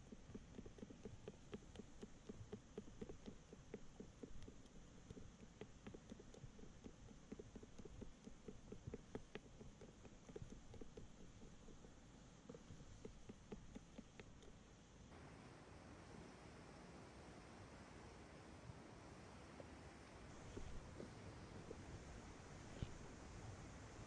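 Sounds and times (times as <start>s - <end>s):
dough squishing: 0.0s - 15.2s.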